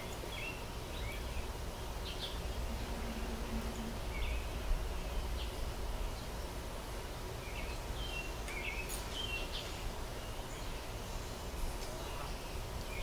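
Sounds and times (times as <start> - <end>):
low background rumble: 0.0 - 8.4.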